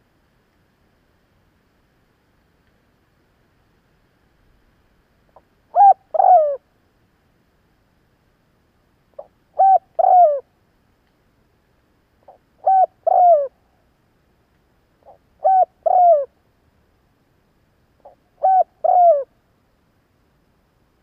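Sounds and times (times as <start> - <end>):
dove cooing: 5.7 - 6.6, 9.2 - 10.5, 12.3 - 13.6, 15.0 - 16.3, 18.0 - 19.3.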